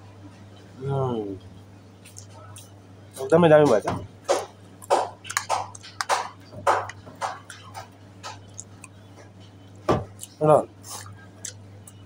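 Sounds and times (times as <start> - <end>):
faint hum: 0.0 - 12.0
person chewing crunchy food: 4.8 - 12.0.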